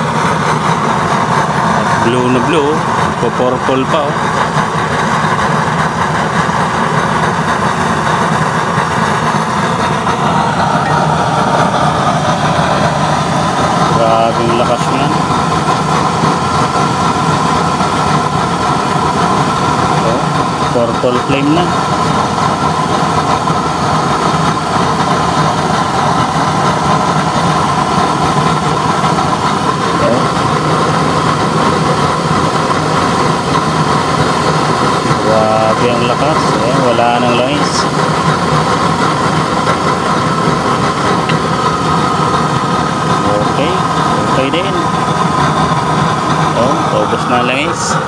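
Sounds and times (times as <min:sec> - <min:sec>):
burner flame roaring: 0:00.0 - 0:48.0.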